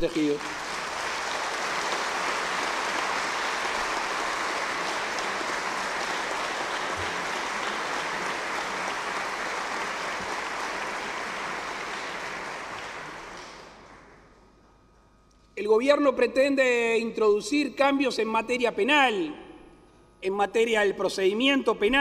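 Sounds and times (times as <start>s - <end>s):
audience applauding: 0.0s - 14.4s.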